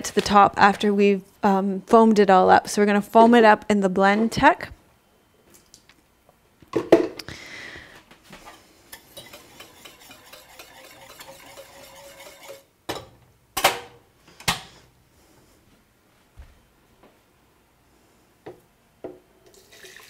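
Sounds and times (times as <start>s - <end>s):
spoon scraping saucepan: 8.9s - 12.7s
saucepan clanking: 8.9s - 13.1s.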